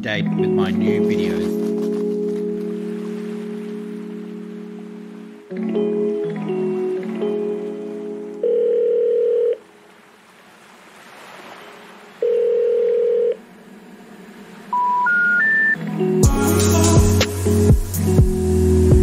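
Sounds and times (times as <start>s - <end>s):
long steady beeps: 14.7s - 15.8s
short rising beeps: 14.7s - 15.8s
electronic music: 14.8s - 19.0s.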